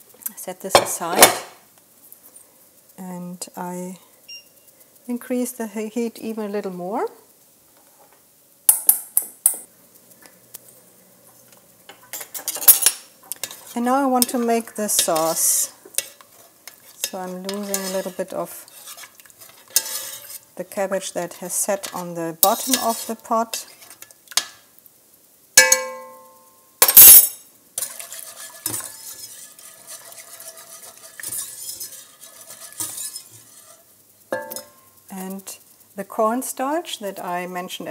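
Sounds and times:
metal utensils clinking: 11.9 - 15.4, 21.8 - 23.2, 26.8 - 34.8
whisk scraping around pot: 12.1 - 24.1, 27.8 - 34.7.

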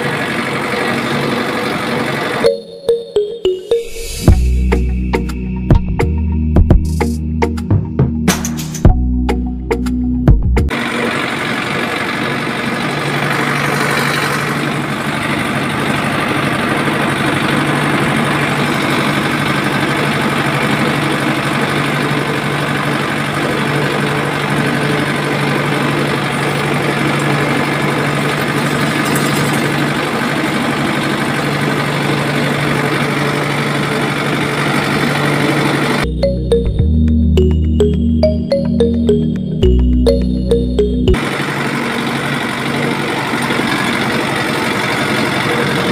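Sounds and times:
toy tractor motor humming: 10.7 - 36.0, 41.2 - 45.9.

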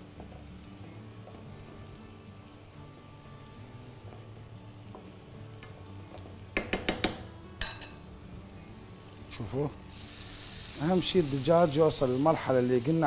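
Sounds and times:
chicken sizzling in a frying pan: 0.0 - 13.0
sharp knocks: 6.6 - 7.2.

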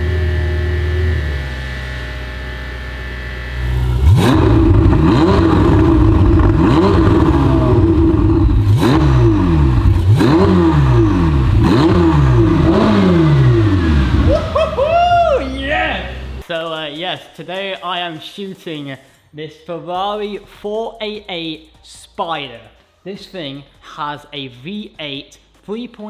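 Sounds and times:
sports car engine revving: 0.0 - 16.4.

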